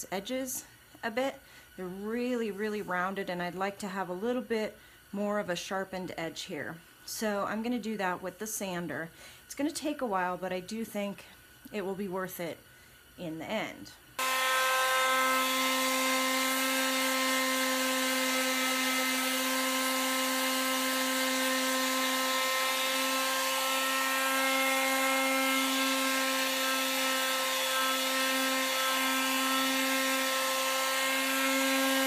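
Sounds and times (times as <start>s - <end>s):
palm sander sanding wood: 14.2s - 32.0s.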